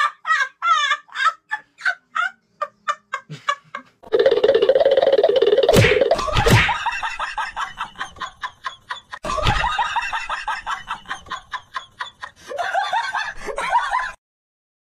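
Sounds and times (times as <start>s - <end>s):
rapid laughter: 0.0s - 4.4s, 6.1s - 14.2s
loud thud: 5.8s - 6.8s.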